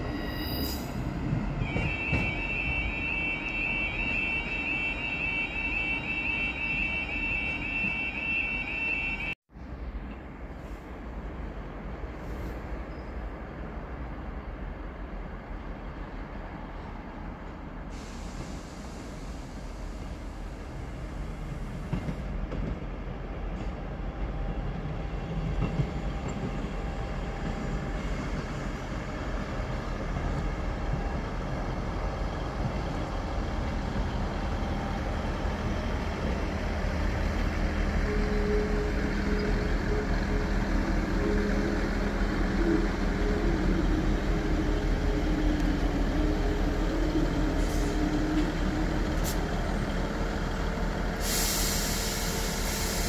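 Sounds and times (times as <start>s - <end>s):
diesel train engines rumbling: 0.0s - 53.0s.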